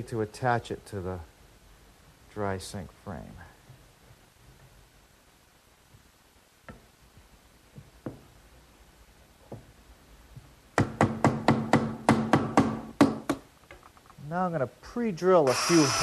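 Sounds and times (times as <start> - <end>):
hammer knocking on wood: 10.8 - 13.4.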